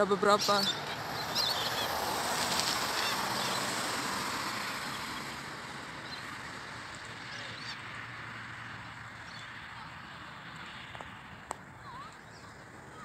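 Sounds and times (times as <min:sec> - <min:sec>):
cockatoos rasping calls: 0:00.4 - 0:03.8.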